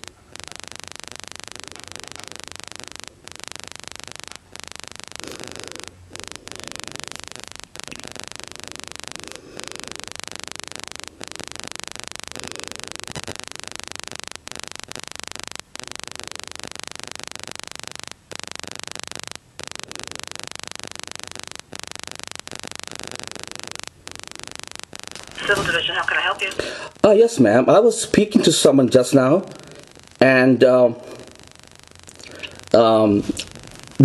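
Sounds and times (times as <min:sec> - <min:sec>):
telephone line hiss: 0:00.0 - 0:34.0.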